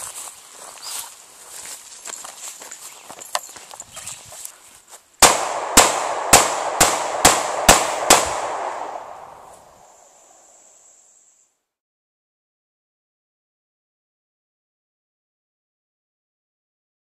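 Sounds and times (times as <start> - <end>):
gunshots echoing: 5.2 - 10.0.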